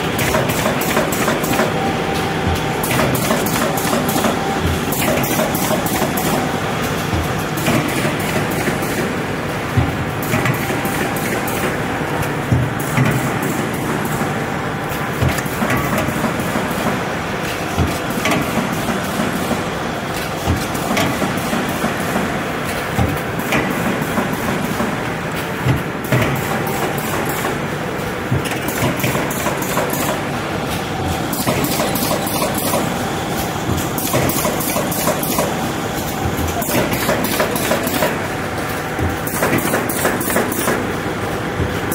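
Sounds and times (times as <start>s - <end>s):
machine mechanical clatter: 0.0s - 41.9s
machine knocks: 9.7s - 10.8s.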